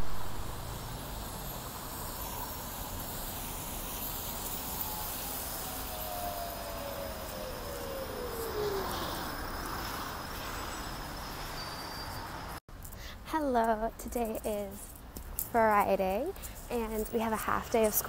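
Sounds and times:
passing cars: 0:00.0 - 0:12.6.

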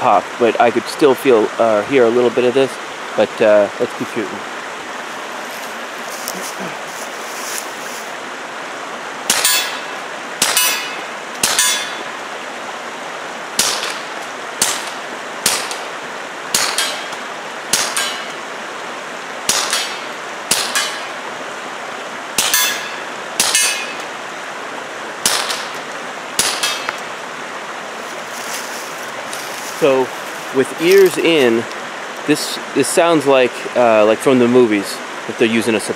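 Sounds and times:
suppressed pistol shots: 0:25.2 - 0:25.8, 0:26.4 - 0:27.0.

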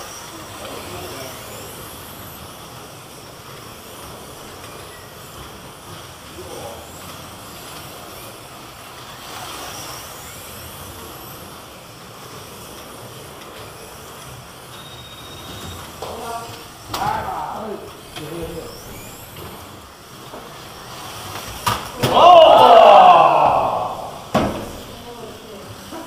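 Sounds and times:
slot car electric motors whining: 0:00.0 - 0:26.0.

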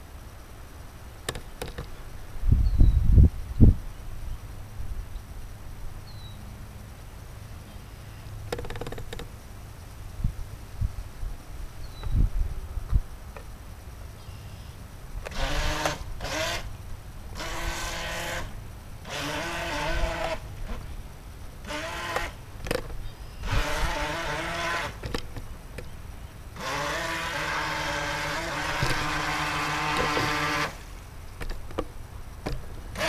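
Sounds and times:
model boat motor whining: 0:15.2 - 0:25.4, 0:26.5 - 0:31.0, 0:32.4 - 0:33.0.

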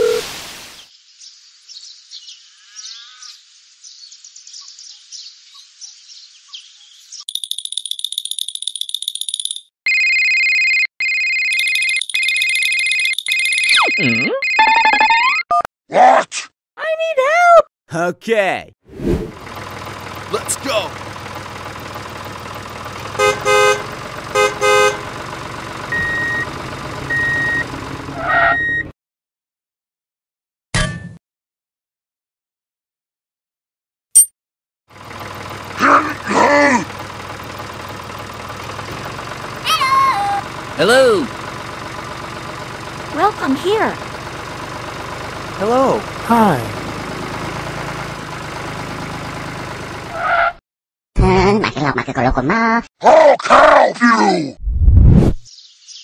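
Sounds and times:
birds chirping: 0:01.0 - 0:09.7
phone ringing with electronic trill: 0:09.9 - 0:15.6
short high beeps: 0:13.4 - 0:15.5
low engine hum: 0:19.3 - 0:28.8, 0:35.0 - 0:50.2
vehicle horn tooting: 0:23.1 - 0:25.3
whoosh: 0:54.6 - 0:55.5.

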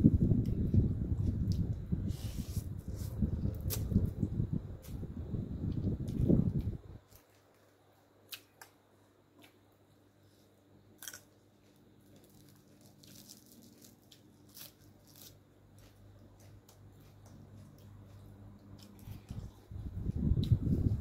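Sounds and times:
faint steady hum: 0:00.0 - 0:21.0
quiet chewing: 0:15.8 - 0:19.7.

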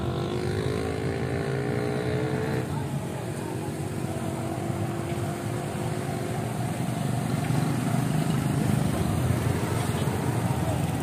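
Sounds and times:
motorcycle rumbling at low speed: 0:00.0 - 0:11.0.

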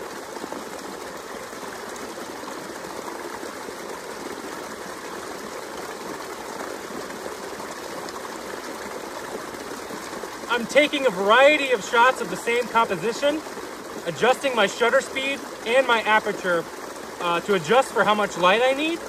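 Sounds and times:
creek water over rocks: 0:00.0 - 0:19.0.

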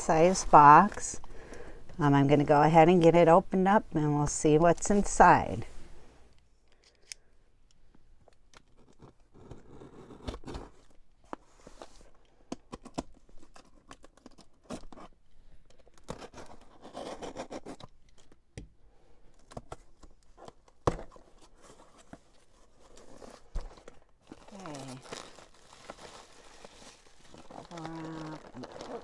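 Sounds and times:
packing tape tearing: 0:23.0 - 0:29.0.

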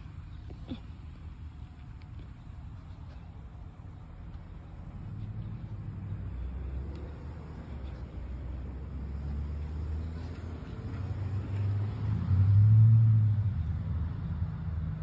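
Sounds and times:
car engine rumbling past: 0:04.6 - 0:15.0.

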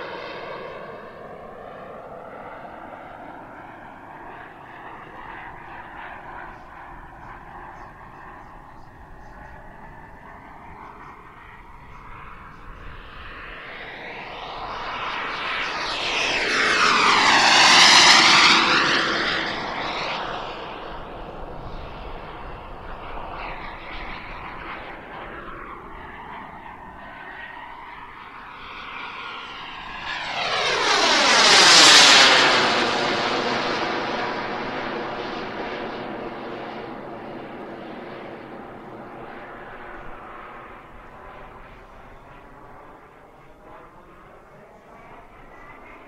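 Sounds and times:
model jet turbine fly-by: 0:00.0 - 0:46.0.

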